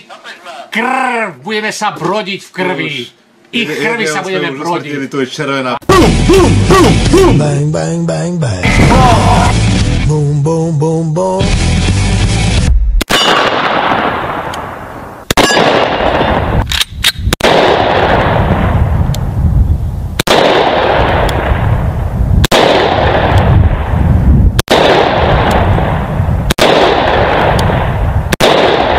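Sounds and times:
gunfire blasts with rumble: 12.7s - 16.7s, 17.3s - 19.1s, 20.2s - 28.9s.

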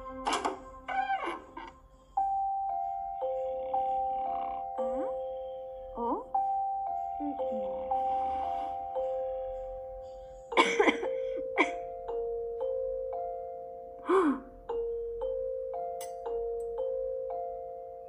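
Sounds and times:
bell-like film score: 1.9s - 14.0s.

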